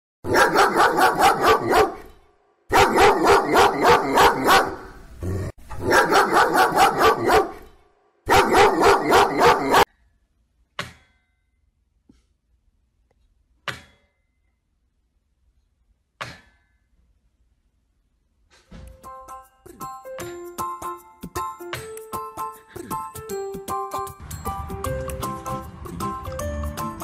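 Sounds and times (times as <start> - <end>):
dog barking rapidly: 0.3 - 2.1, 2.7 - 5.0, 5.8 - 7.7, 8.3 - 9.9.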